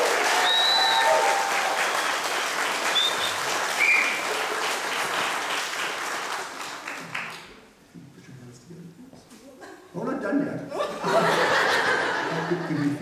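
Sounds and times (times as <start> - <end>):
congregation clapping: 0.0 - 7.7.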